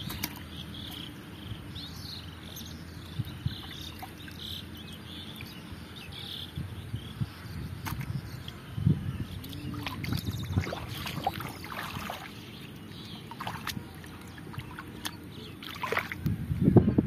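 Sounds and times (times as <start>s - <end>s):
small water splashes: 0.0s - 1.1s, 2.5s - 5.6s, 7.8s - 8.6s, 9.3s - 16.3s
hands and feet sloshing in water: 0.0s - 1.2s, 2.5s - 4.7s, 9.3s - 16.2s.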